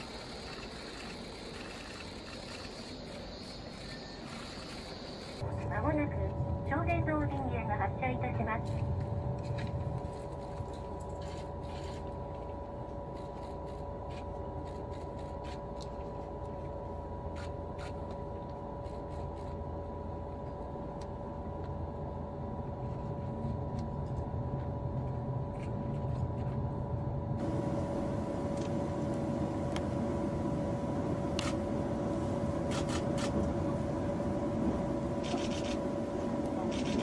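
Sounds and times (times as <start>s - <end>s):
constant hum tones: 0.0s - 37.0s
train cabin rumble: 27.3s - 37.0s.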